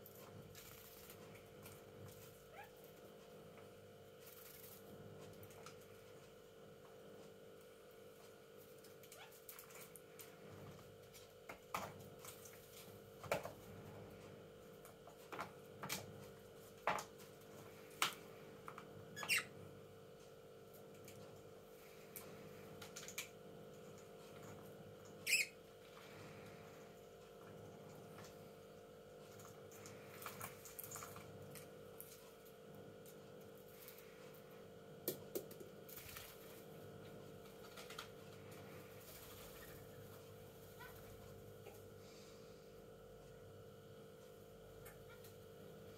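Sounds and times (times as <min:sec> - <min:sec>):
faint steady hum: 0:00.0 - 0:45.9
parrot chirp: 0:19.2 - 0:19.5, 0:25.2 - 0:25.6.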